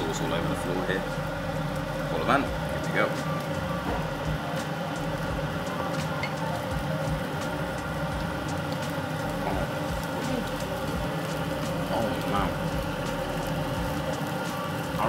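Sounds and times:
hum and hiss: 0.0s - 15.0s.

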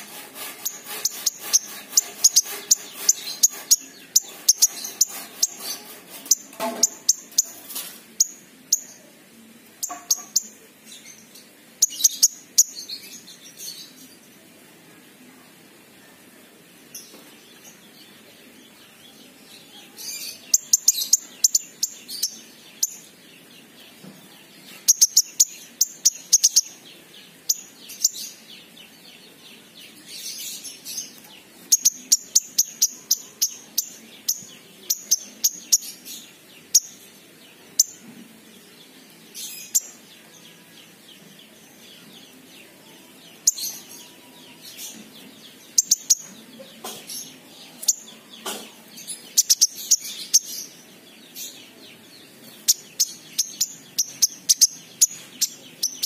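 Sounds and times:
bird high rapid chirps: 0.0s - 8.9s, 44.7s - 46.4s, 47.8s - 50.8s, 52.4s - 56.0s.

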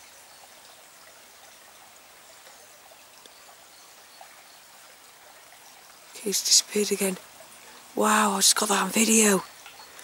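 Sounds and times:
faint stream running: 0.0s - 10.0s
faint ticks: 2.4s - 3.5s, 9.5s - 10.0s.

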